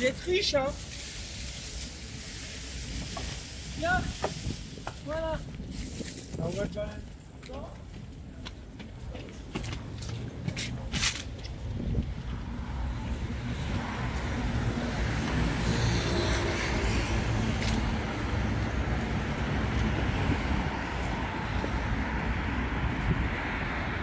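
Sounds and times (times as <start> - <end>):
cars driving past: 12.2 - 24.0.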